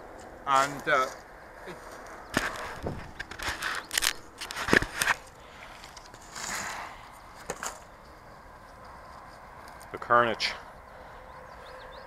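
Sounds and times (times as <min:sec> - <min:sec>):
foam pieces crackling and clicking: 0:01.9 - 0:06.8.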